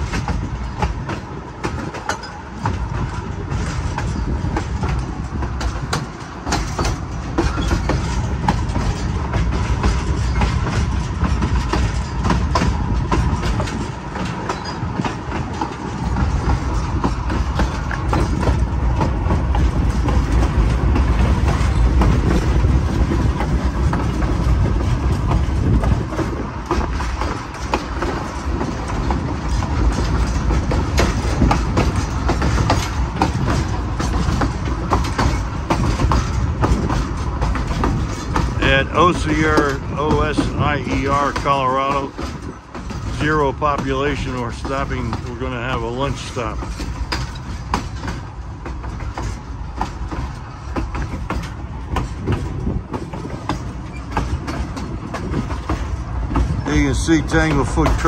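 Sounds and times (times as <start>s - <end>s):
wheels clicking over rail joints: 0.0s - 58.0s
wheels rumbling on rails: 0.0s - 58.0s.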